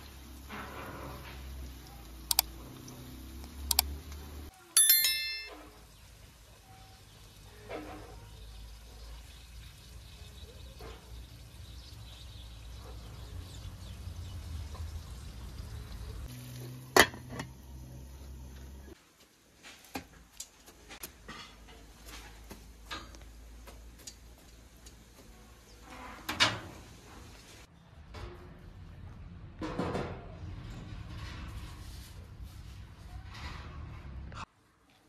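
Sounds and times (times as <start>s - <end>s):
sizzling in a pan: 0.0s - 4.7s, 5.7s - 27.7s
metal lid clanking on pan: 17.0s - 17.5s.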